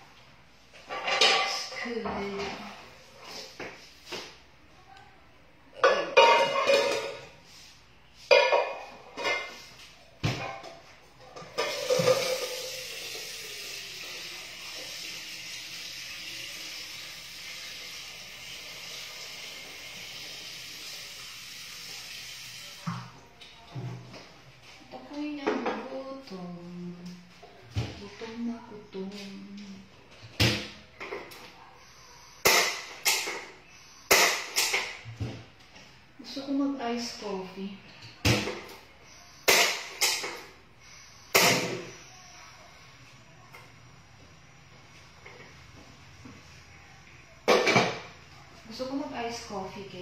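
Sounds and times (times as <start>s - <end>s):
kitchenware knocking and clattering: 0.8s - 2.6s, 5.8s - 7.4s, 8.3s - 9.6s, 10.2s - 12.8s, 47.5s - 48.1s
stove hissing and sizzling: 11.6s - 23.0s, 31.0s - 35.0s, 39.2s - 42.5s.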